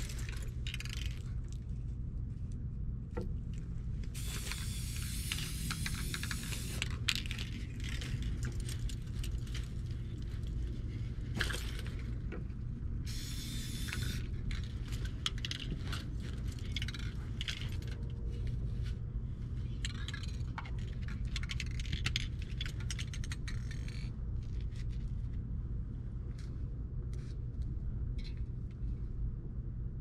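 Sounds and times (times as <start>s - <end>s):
spray can hissing: 4.2s - 6.9s, 13.1s - 14.2s
cans clicking and rattling: 4.2s - 9.4s.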